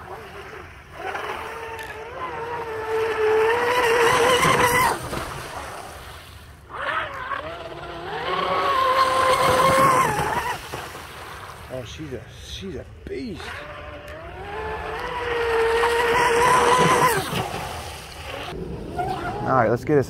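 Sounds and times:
electric motor whining: 0:13.5 - 0:17.6.

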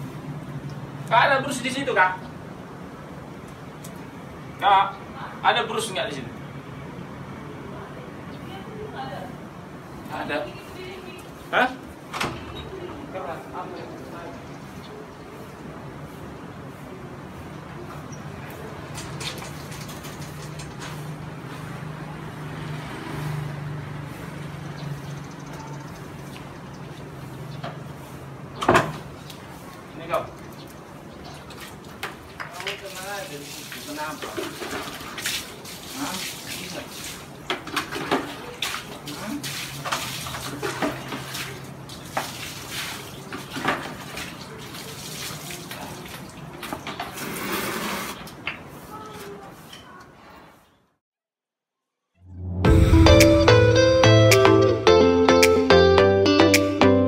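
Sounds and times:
water splashing and sloshing: 0:18.3 - 0:25.0, 0:25.9 - 0:49.3.

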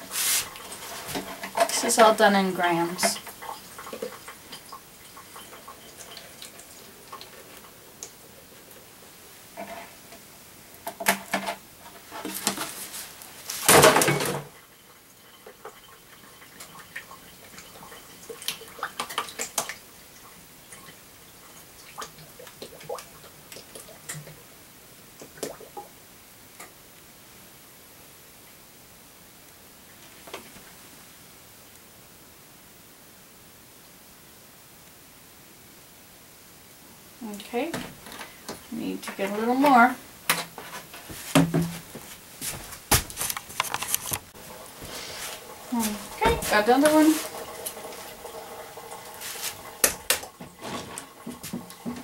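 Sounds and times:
plastic containers clattering: 0:13.5 - 0:14.6, 0:49.9 - 0:52.0.

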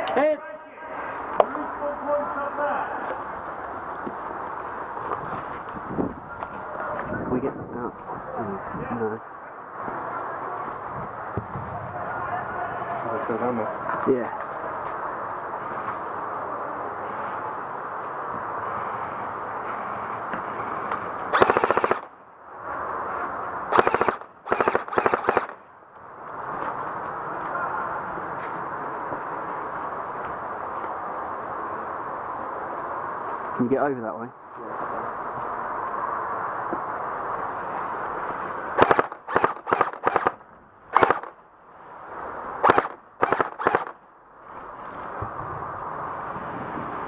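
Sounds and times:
airsoft gun firing bursts: 0:21.4 - 0:22.1, 0:23.7 - 0:25.6, 0:38.8 - 0:41.3, 0:42.6 - 0:44.0.

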